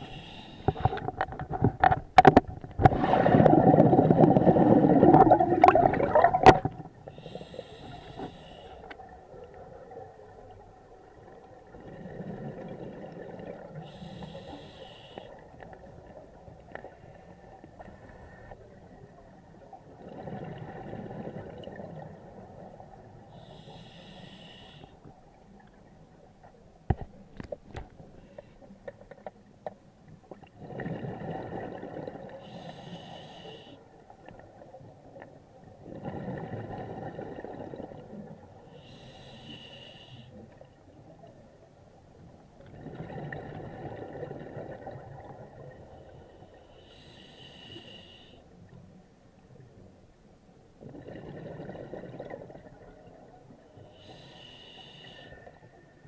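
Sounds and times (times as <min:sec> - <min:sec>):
regulator inhalation hiss: 0:00.0 - 0:00.9, 0:07.1 - 0:08.9, 0:13.8 - 0:15.4, 0:23.4 - 0:25.0, 0:32.4 - 0:33.8, 0:38.7 - 0:40.4, 0:46.7 - 0:48.4, 0:54.0 - 0:55.5
bubbling exhalation underwater: 0:02.9 - 0:06.7.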